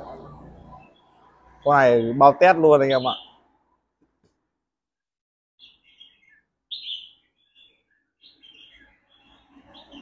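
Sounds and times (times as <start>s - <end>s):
bird singing warbled phrases: 0.0s - 3.6s, 5.6s - 10.0s.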